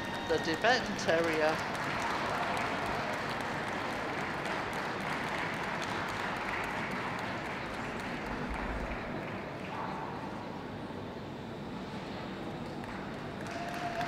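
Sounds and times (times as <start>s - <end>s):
audience applauding: 0.0s - 9.8s, 12.6s - 14.0s.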